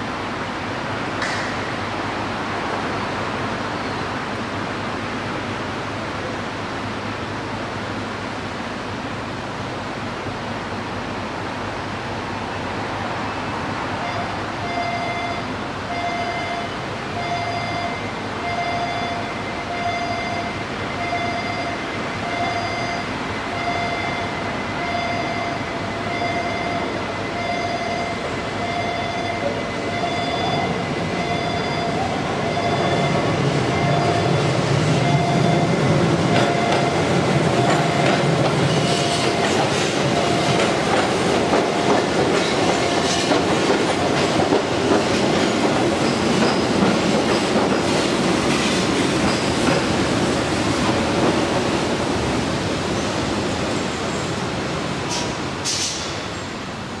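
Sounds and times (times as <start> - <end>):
street traffic noise: 0.0 - 57.0
level crossing warning bell dinging: 14.0 - 38.3
train running rumble: 28.0 - 57.0.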